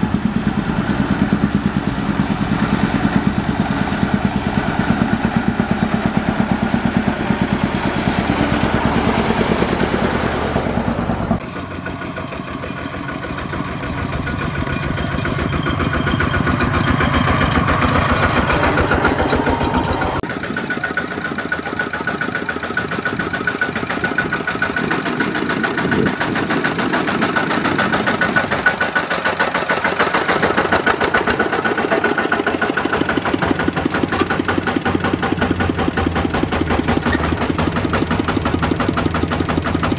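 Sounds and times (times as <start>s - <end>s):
diesel engine running under load: 0.0s - 39.9s.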